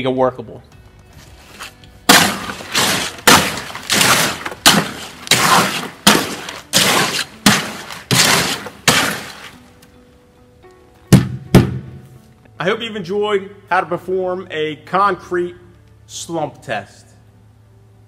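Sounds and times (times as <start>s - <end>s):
hoe mixing wet concrete: 1.5s - 9.6s.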